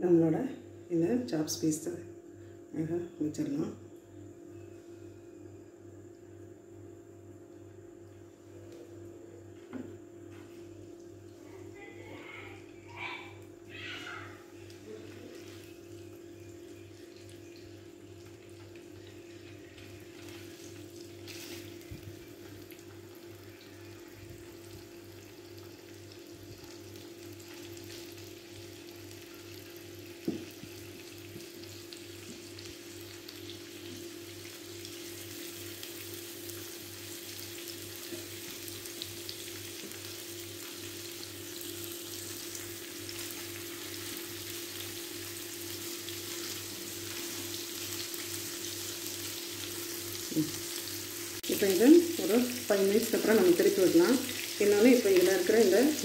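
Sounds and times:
steady low hum: 0.0s - 39.6s
meat sizzling in a pan: 12.9s - 56.0s.

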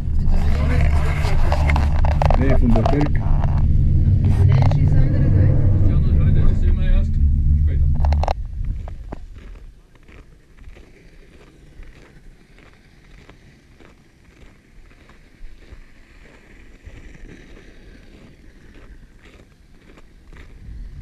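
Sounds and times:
wind buffeting microphone: 0.0s - 9.8s, 20.3s - 21.0s
footsteps crunching in snow: 8.6s - 20.6s.

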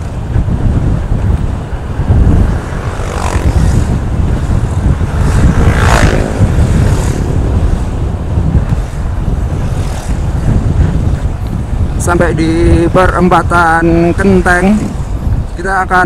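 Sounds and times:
motorbike passing whoosh: 0.0s - 12.0s
wind buffeting microphone: 0.0s - 16.0s
motorbike engine passing by: 2.5s - 7.6s.

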